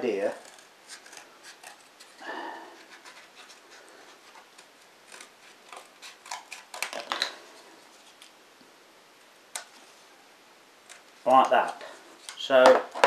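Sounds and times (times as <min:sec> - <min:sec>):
scissors snipping cardboard: 0:04.5 - 0:07.1.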